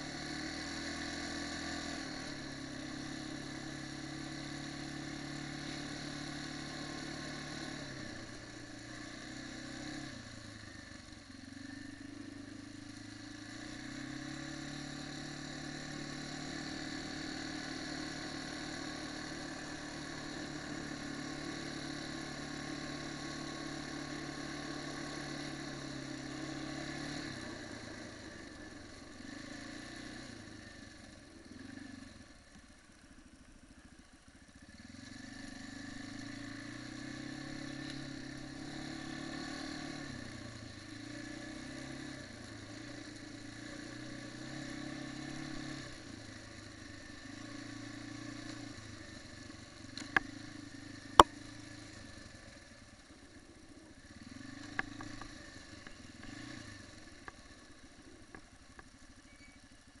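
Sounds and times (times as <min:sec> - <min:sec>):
quad bike engine running: 0:00.0 - 1:00.0.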